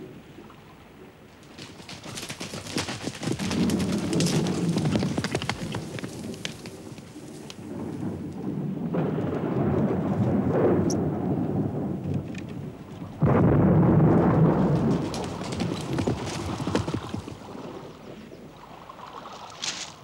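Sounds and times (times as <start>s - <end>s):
deep rumble: 6.2s - 18.6s.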